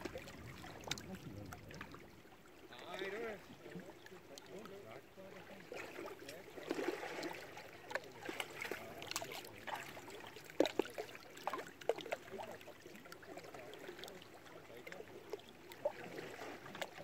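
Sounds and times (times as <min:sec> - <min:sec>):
small waves slapping: 0:00.0 - 0:04.7, 0:05.4 - 0:17.0
lake water lapping against rocks: 0:00.0 - 0:17.0.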